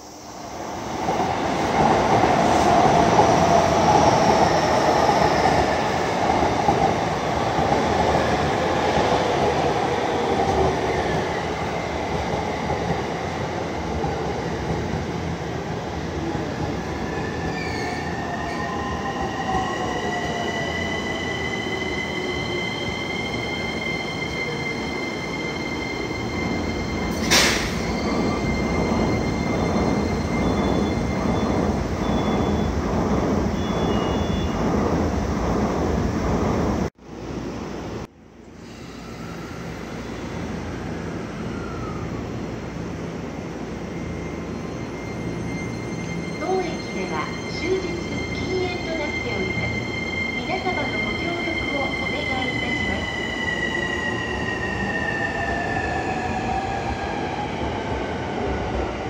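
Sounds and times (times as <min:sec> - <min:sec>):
electric train running past: 0:38.5 - 0:59.0.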